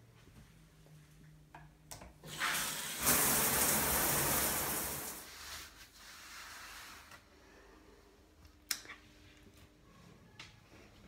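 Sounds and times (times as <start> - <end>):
shower water spraying: 2.3 - 5.3.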